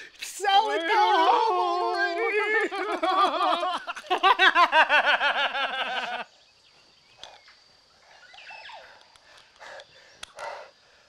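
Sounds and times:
men laughing hard: 1.0s - 6.4s.

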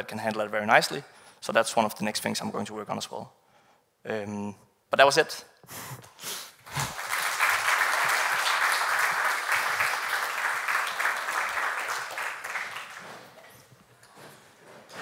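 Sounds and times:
audience applauding: 6.6s - 13.7s.

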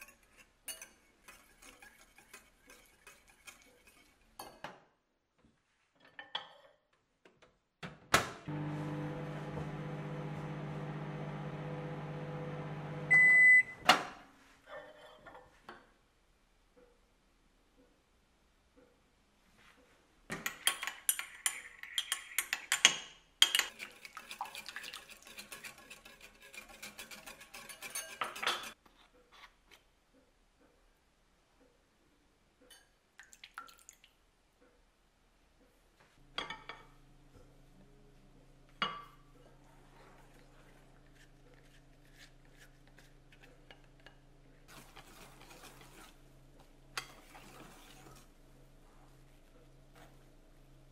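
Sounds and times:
microwave oven humming: 8.5s - 13.8s
microwave beep: 12.5s - 13.8s.

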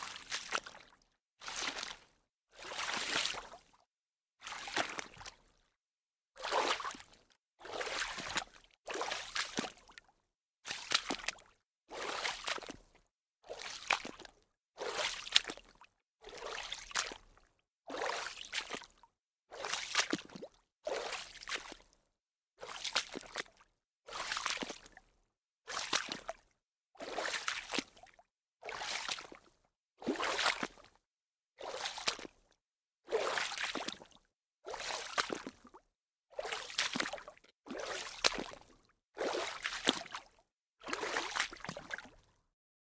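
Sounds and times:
water splashing with slaps: 10.8s - 11.4s, 30.0s - 30.7s, 36.4s - 37.2s, 37.9s - 38.6s, 39.2s - 40.2s, 40.9s - 42.1s.

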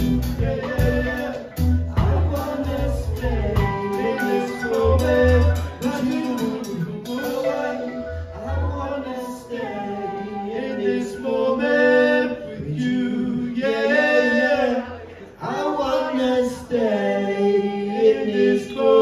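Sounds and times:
live band with guitars: 0.0s - 9.4s
people singing: 0.0s - 19.0s.

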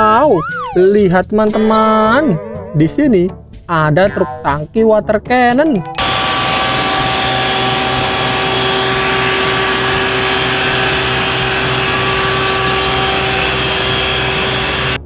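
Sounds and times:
high-pressure water jet rushing: 6.0s - 15.0s
truck engine and pump hum: 6.0s - 15.0s.

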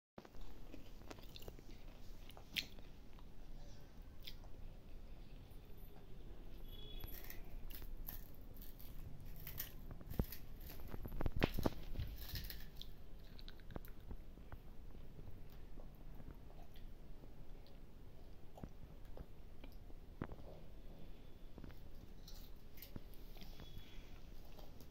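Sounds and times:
toddler chewing crispy snack: 0.2s - 3.3s, 6.8s - 17.0s.

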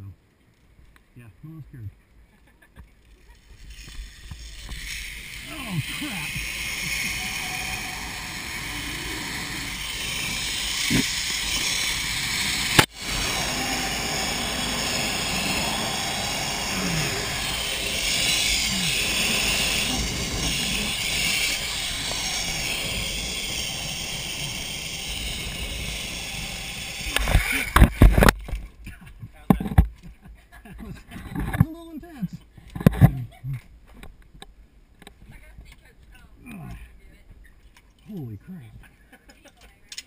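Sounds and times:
pulleys running along steel cable: 3.0s - 28.4s.

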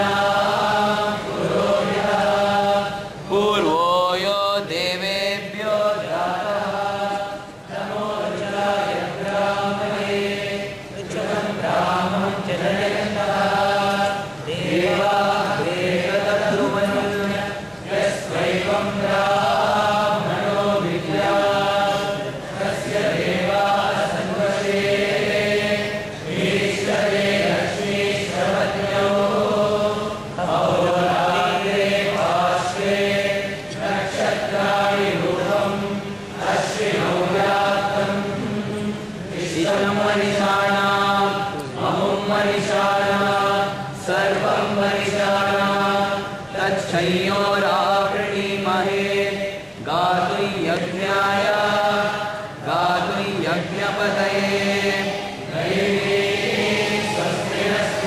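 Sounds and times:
voices chanting verses: 0.0s - 58.0s.

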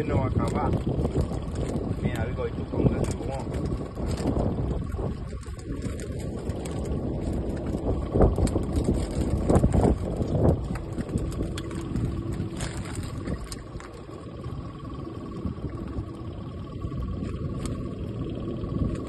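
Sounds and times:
faint steady hum: 0.0s - 19.0s
wind buffeting the microphone: 0.0s - 19.0s.

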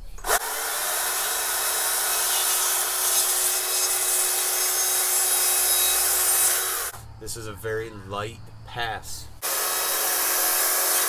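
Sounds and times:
chainsaw cutting log: 0.2s - 7.0s, 9.4s - 11.0s
electric chainsaw whine: 0.2s - 7.0s, 9.4s - 11.0s.

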